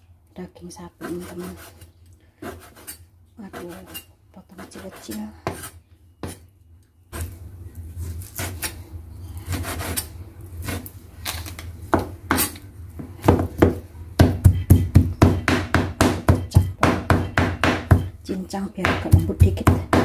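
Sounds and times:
cleaver chopping meat on board: 13.2s - 18.1s, 18.8s - 20.0s.

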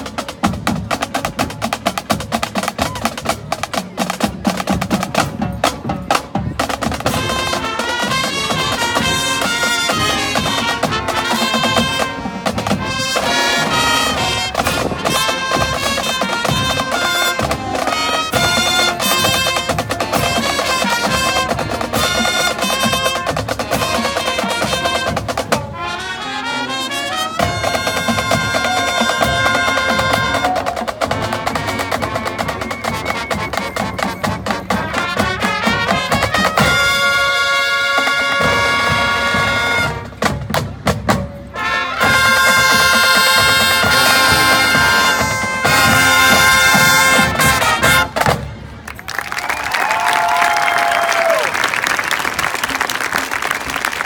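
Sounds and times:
marching drums and percussion: 0.0s - 51.7s
brass with trumpet lead: 6.6s - 48.8s.

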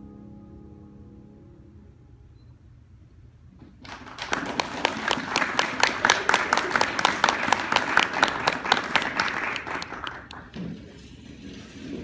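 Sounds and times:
audience applause: 3.8s - 10.6s.

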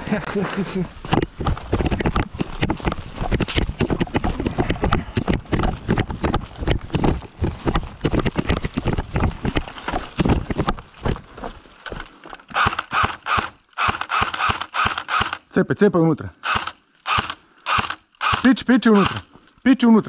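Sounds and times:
gear jostling: 0.5s - 13.0s
running footsteps thudding: 1.0s - 12.6s.

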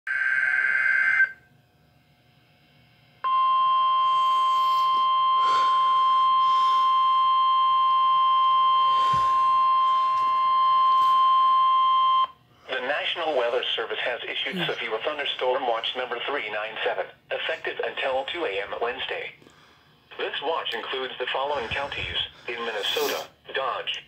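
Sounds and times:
steady warning alarm tone: 3.2s - 13.8s.

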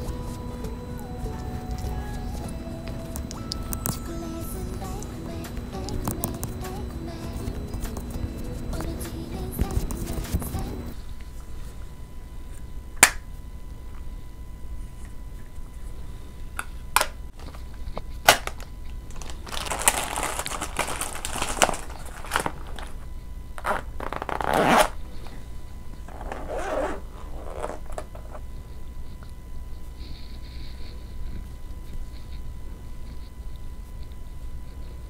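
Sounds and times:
cosmetic pouch crinkling: 18.2s - 23.0s.

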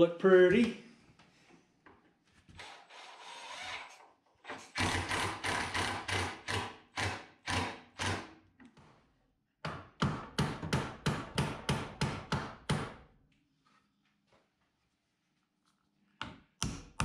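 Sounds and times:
impact driver hammering screw: 4.5s - 8.3s.

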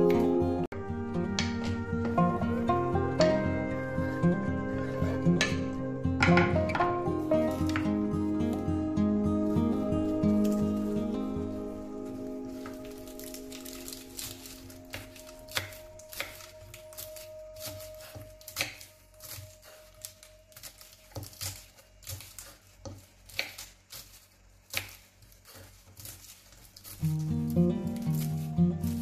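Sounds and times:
knife chopping lettuce on board: 13.6s - 29.0s.

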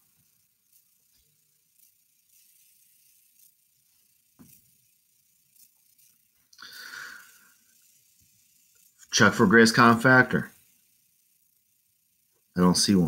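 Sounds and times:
brief hiss: 6.5s - 7.8s.

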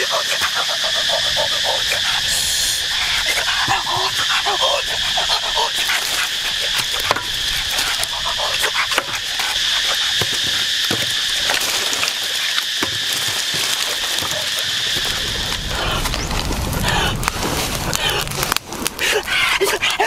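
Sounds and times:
high insect buzz: 0.0s - 20.0s
dry sticks knocking: 5.7s - 15.7s.

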